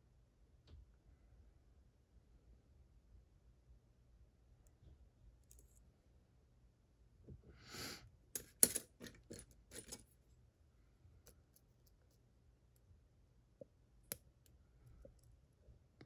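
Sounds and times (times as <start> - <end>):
metal tools clinking: 8.4 - 10.0.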